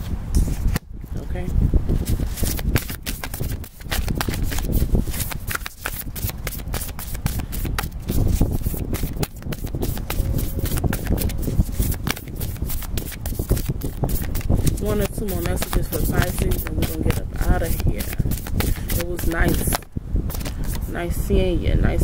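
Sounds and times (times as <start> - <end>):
cards being shuffled: 2.0 - 20.9
low rumble: 8.0 - 14.8.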